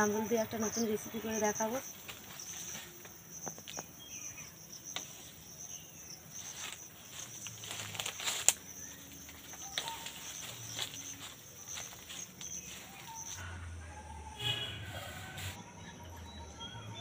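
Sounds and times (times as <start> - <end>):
leaves rustling: 0.0 - 13.4, 14.4 - 15.6
high-pitched insect drone: 0.0 - 13.5
twigs clicking: 4.9 - 5.4, 6.3 - 13.4
branch snapping: 6.7 - 11.1.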